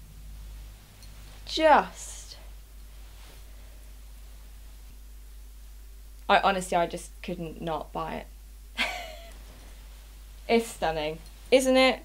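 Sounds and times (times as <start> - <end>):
low steady hum: 0.0 - 12.0
clothing rustle: 0.6 - 5.0, 9.3 - 11.6.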